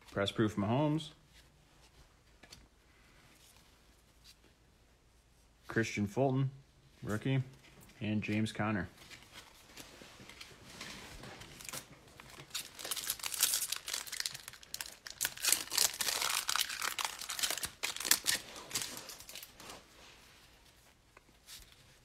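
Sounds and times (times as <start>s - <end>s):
wrapper crinkling: 11.4s - 19.8s
card pack wrapper tearing: 11.6s - 19.6s.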